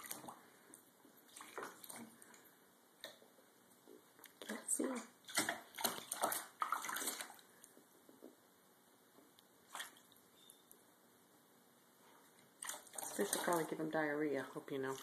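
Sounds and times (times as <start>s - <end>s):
paw splashing water: 1.3s - 2.4s, 5.2s - 7.4s, 12.6s - 13.9s.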